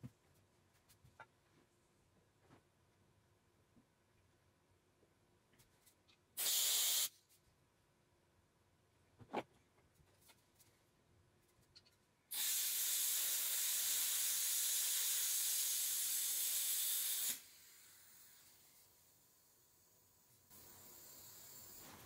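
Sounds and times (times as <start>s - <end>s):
gas can hissing: 6.4s - 7.1s, 12.3s - 18.8s, 20.5s - 22.0s.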